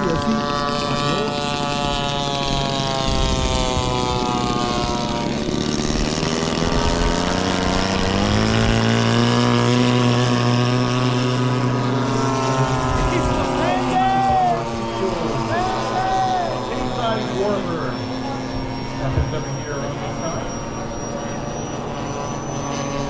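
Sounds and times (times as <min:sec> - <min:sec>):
model airplane engine running: 0:00.0 - 0:23.0.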